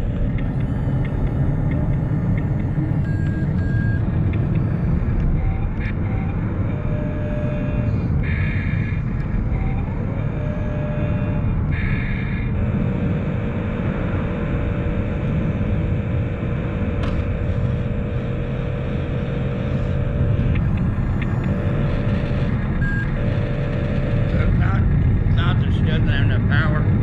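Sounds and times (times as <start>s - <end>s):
steady hum: 0.0s - 27.0s
low rumble: 12.4s - 27.0s.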